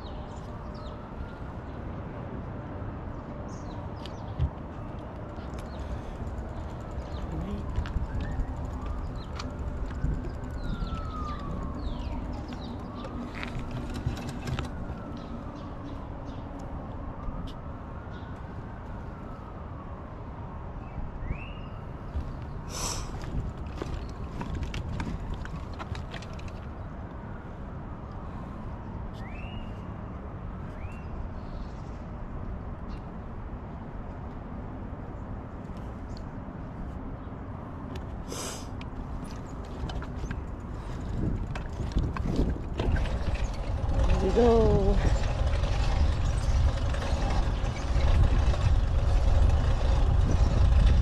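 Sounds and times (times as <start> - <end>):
emergency siren wailing: 0.0 - 2.9, 6.4 - 22.3
street noise rumble: 0.0 - 51.0
traffic noise: 0.0 - 51.0
wind: 0.0 - 51.0.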